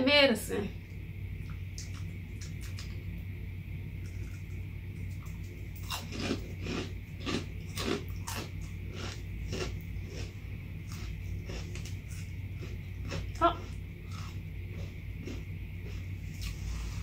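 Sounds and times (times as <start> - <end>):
crunchy snack chewing: 4.0 - 17.0.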